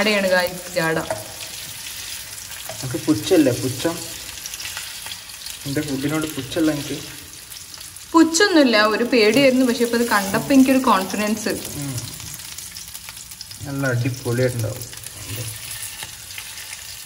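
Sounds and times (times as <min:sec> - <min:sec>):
food sizzling in a pan: 0:00.0 - 0:17.0
person singing or humming: 0:11.7 - 0:12.2.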